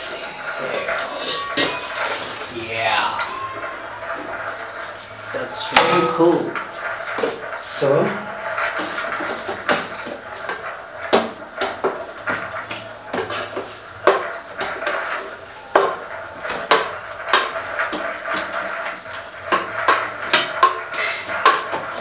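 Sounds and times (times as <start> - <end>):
wooden spoon knocking metal pot: 0.9 - 2.4, 8.6 - 22.0.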